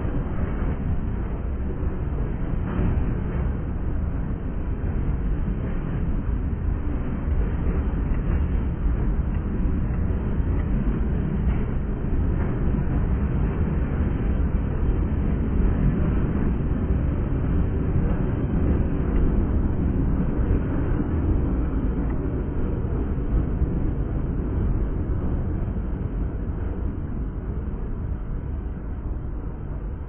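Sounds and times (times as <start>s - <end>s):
freight train rumbling past: 0.0s - 30.0s
wind noise on microphone: 0.0s - 30.0s.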